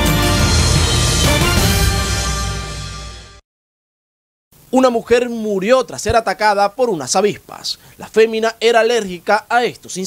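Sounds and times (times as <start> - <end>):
news theme music with steady beat: 0.0 - 3.4.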